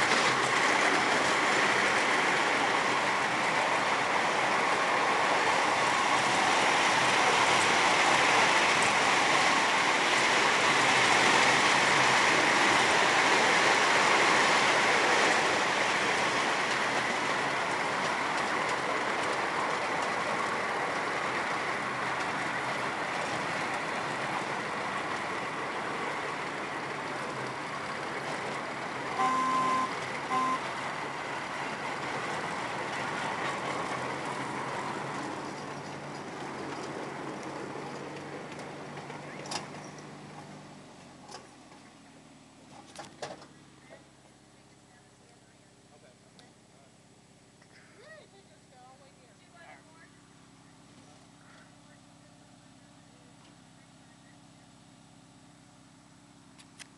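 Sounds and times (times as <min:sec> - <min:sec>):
train wheels on rails: 0:00.0 - 0:44.4
locomotive horn toots: 0:29.2 - 0:30.7.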